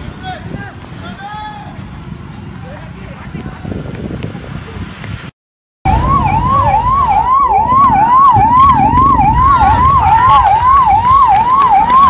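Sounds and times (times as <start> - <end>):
emergency siren yelping: 5.9 - 12.0.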